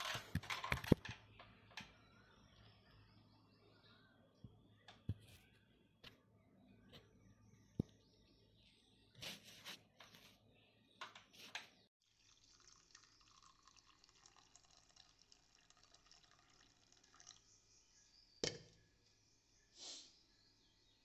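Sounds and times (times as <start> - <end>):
coffee pouring into mug: 12.1 - 17.6.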